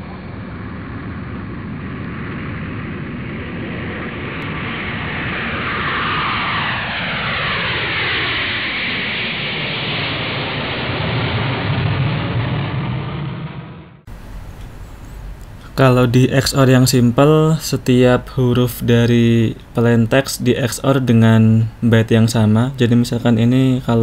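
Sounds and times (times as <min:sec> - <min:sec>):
falling sweep: 0:00.0 - 0:14.6
rumbling whoosh: 0:00.0 - 0:15.1.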